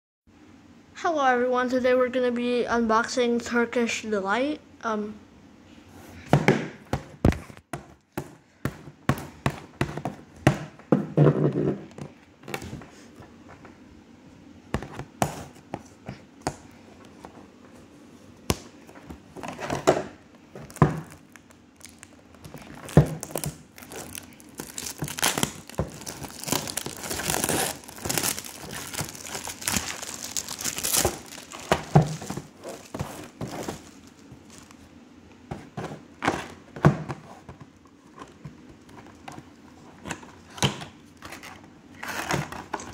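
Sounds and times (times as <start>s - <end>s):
plastic wrap crinkling: 20.5s - 34.9s.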